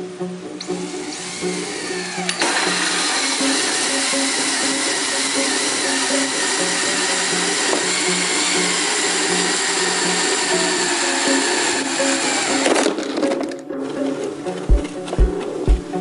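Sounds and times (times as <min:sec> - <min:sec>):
background music: 0:00.0 - 0:16.0
cordless drill whining: 0:00.6 - 0:14.2.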